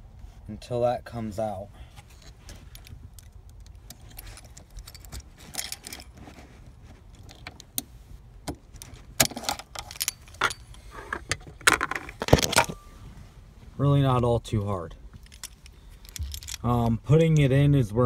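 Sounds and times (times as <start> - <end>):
keys jangling: 2.6 - 6.2, 15.2 - 16.7.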